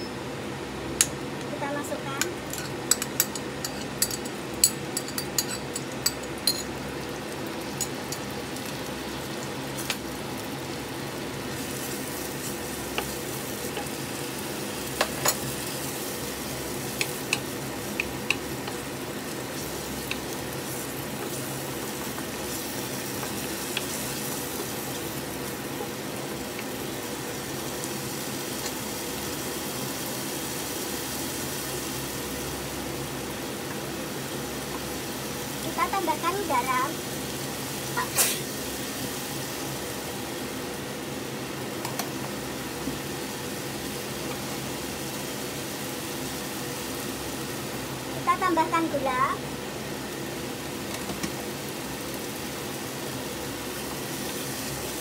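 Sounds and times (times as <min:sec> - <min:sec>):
spoon clinking and scraping pan: 0:02.5 - 0:06.7
paste sizzling in hot oil: 0:02.5 - 0:41.6.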